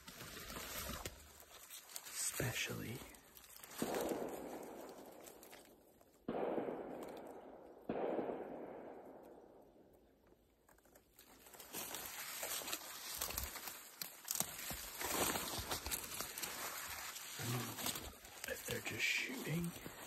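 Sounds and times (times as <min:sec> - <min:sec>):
distant rifle shots with echo: 0:03.8 - 0:10.1.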